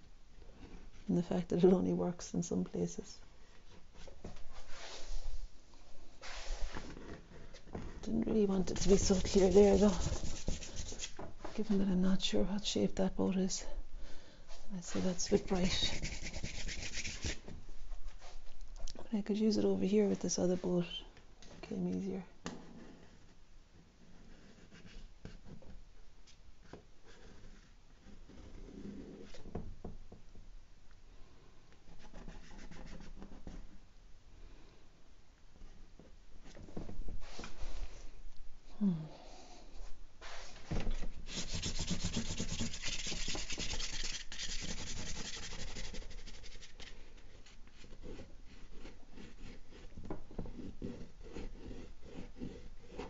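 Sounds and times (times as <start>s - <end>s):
pastel scratching on board: 8.5s - 11.2s, 14.9s - 17.4s, 32.0s - 33.7s, 41.2s - 53.0s.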